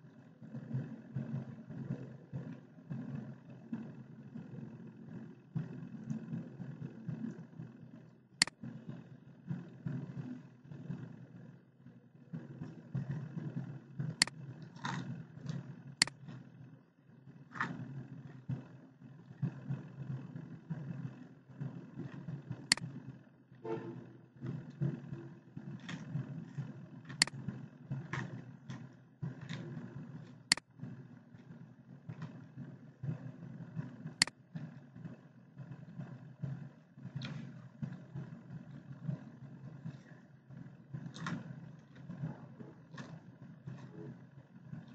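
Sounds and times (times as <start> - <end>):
low background rumble: 0.0 - 44.9
computer mouse clicking: 27.1 - 30.7.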